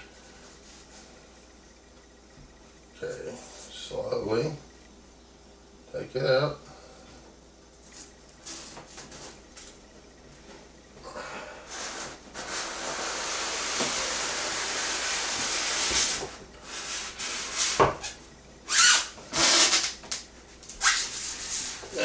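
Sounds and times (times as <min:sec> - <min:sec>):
packing scraping against cardboard: 0:11.7 - 0:17.9.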